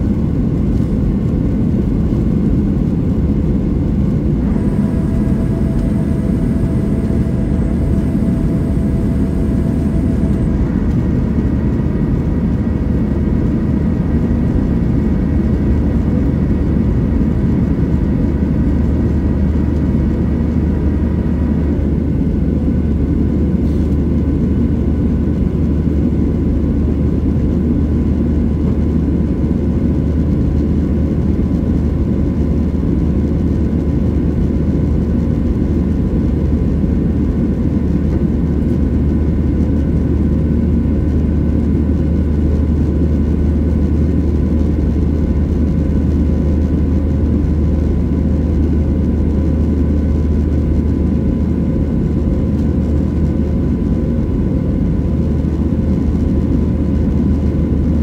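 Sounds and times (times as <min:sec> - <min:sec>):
airliner cabin engine drone: 0:00.0 - 0:58.0
faint steady tones: 0:04.4 - 0:11.8.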